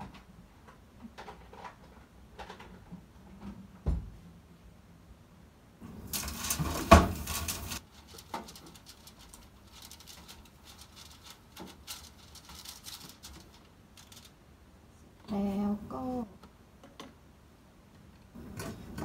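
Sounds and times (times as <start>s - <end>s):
brush scraping metal pan: 5.9s - 13.6s
rustle: 6.0s - 14.4s.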